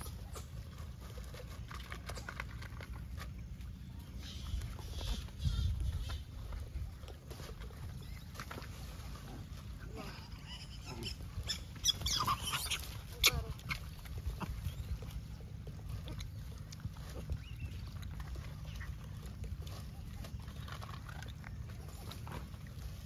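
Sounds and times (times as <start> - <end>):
monkeys squealing and chattering: 9.9 - 15.3.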